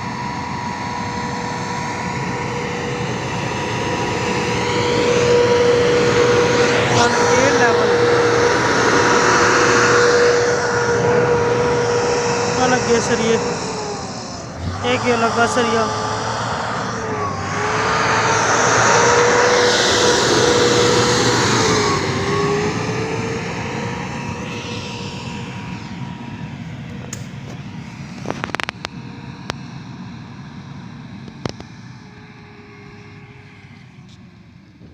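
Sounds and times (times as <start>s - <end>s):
diesel engine under load: 0.0s - 34.9s.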